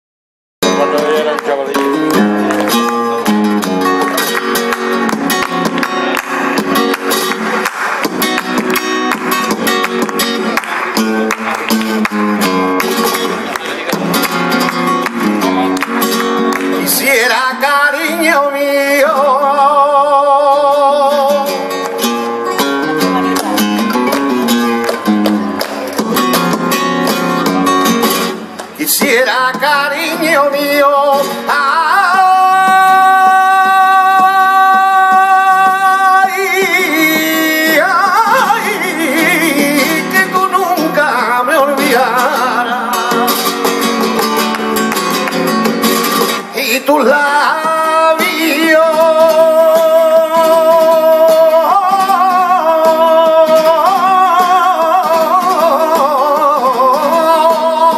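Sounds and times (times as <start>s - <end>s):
man singing: 0.6s - 3.3s, 16.6s - 22.0s, 28.8s - 44.2s, 46.2s - 57.9s
flamenco guitar: 0.6s - 57.9s
hand clapping: 0.8s - 17.1s, 21.7s - 29.0s, 43.0s - 46.6s.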